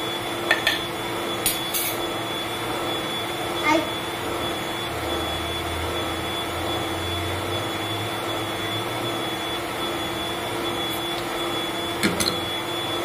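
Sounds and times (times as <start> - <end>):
electric mixer motor humming: 0.0 - 13.0.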